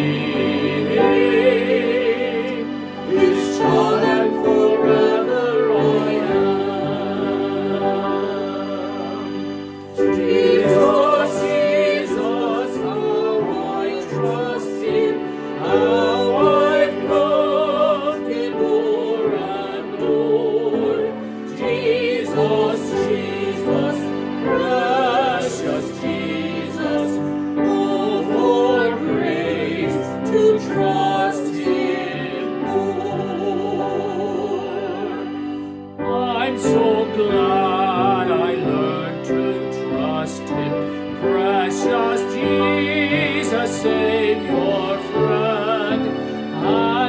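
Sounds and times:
sustained keyboard chords: 0:00.0 - 0:35.2.

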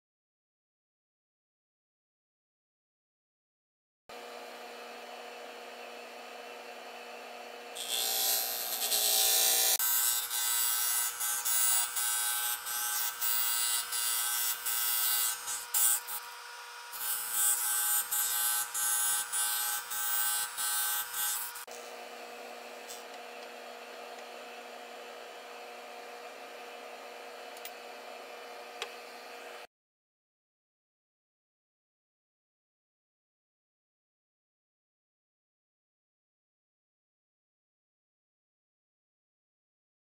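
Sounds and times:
disc sander humming: 0:04.1 - 0:29.7.

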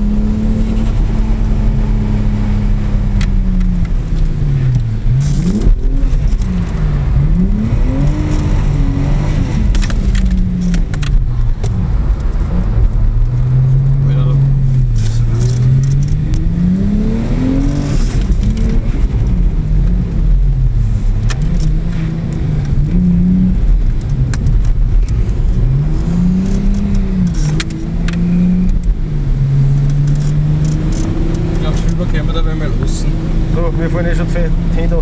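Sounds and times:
car engine revving: 0:00.0 - 0:35.0
sharp clicks: 0:29.8 - 0:32.0.

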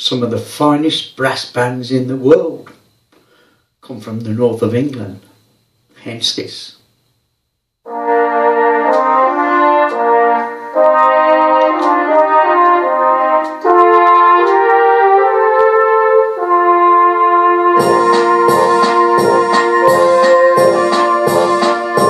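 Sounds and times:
keyboard brass chords: 0:07.9 - 0:22.0
rhythm accompaniment beat: 0:07.9 - 0:22.0.

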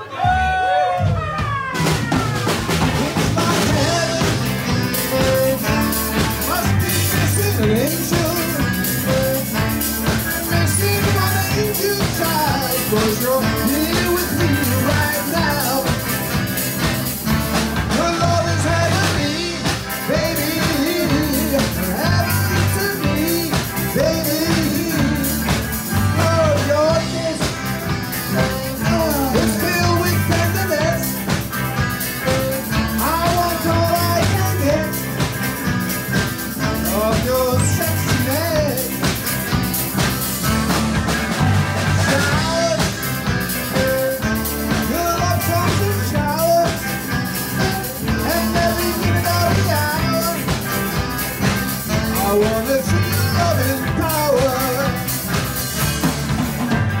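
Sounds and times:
rock and roll band playing: 0:00.0 - 0:57.0
man singing into microphone: 0:03.0 - 0:16.2, 0:17.9 - 0:31.3, 0:32.2 - 0:35.2, 0:36.6 - 0:39.1, 0:42.0 - 0:50.8, 0:51.9 - 0:55.3.

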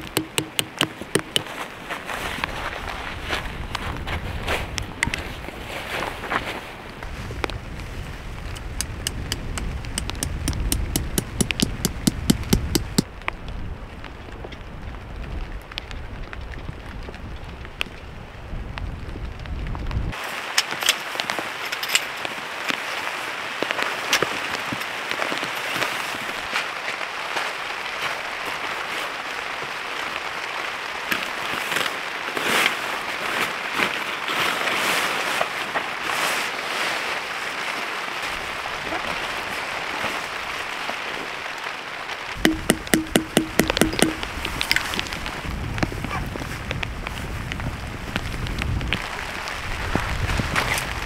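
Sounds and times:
sharp knocks: 0:00.0 - 0:01.5, 0:08.8 - 0:13.0, 0:42.4 - 0:44.4
low rumble of wind: 0:00.0 - 0:20.2, 0:42.2 - 0:51.0
heavy rain falling: 0:00.0 - 0:34.2, 0:35.6 - 0:51.0.

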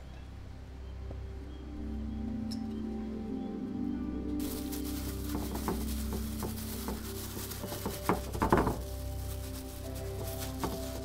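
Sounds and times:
soft background music: 0:00.0 - 0:11.0
knocks and rustles: 0:04.4 - 0:11.0.

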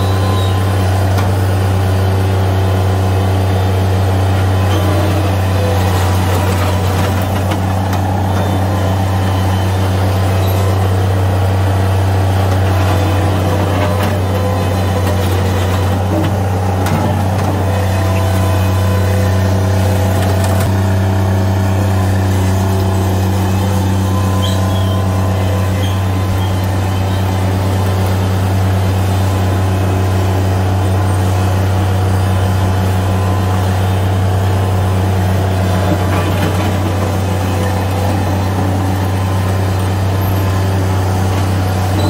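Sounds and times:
diesel engine running: 0:00.0 - 0:42.0
loader scooping gravel: 0:00.0 - 0:42.0.

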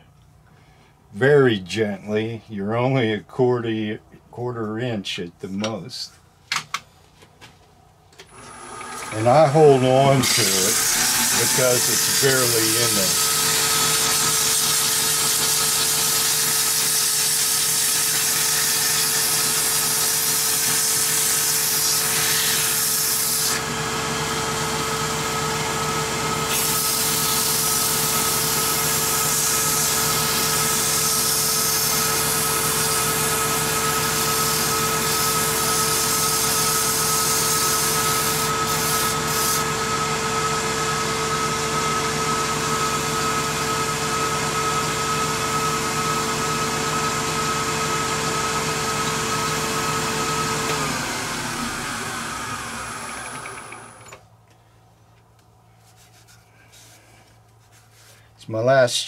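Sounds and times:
wood lathe motor humming: 0:08.3 - 0:54.2
hiss of wood being turned: 0:10.2 - 0:13.4, 0:26.5 - 0:39.6.

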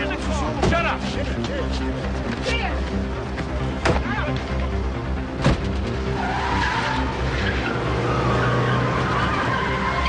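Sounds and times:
car engine: 0:02.9 - 0:10.0
car door slamming: 0:05.4 - 0:05.8
tire squeal: 0:06.0 - 0:10.0.

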